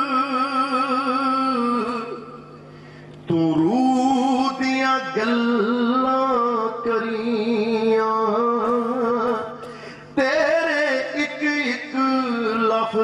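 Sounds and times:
man singing long wavering notes: 0:00.0 - 0:02.5, 0:03.3 - 0:09.4.

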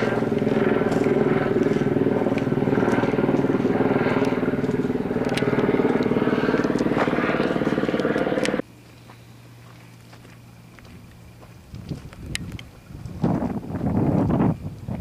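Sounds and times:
helicopter rotor chop: 0:00.0 - 0:08.6
helicopter engine hum: 0:00.0 - 0:08.7.

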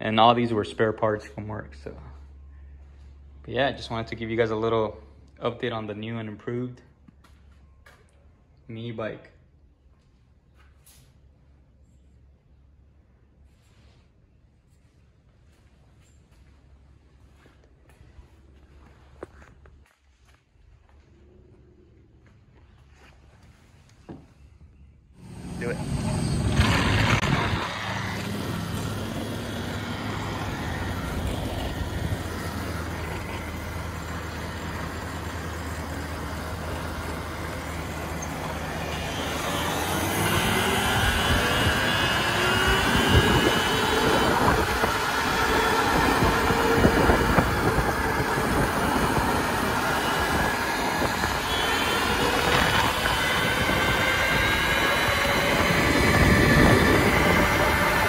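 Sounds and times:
vehicle engine whine: 0:24.8 - 0:58.0
wind and tyre noise: 0:25.2 - 0:58.0.

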